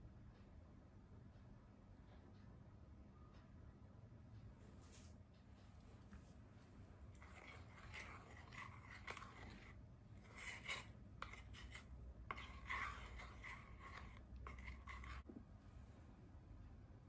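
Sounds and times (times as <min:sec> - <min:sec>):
wooden spoon scraping saucepan: 0:07.1 - 0:15.3.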